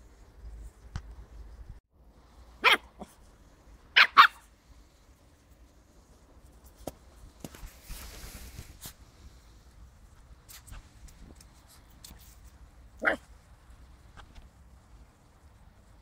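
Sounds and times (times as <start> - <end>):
puppy barking: 2.6 - 3.2, 3.9 - 4.5, 13.0 - 13.3.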